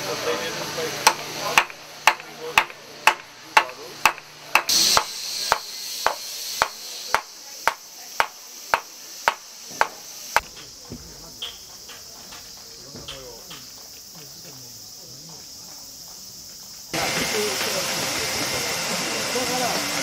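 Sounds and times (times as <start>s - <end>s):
wooden mallet striking gouge: 1.0s - 10.6s.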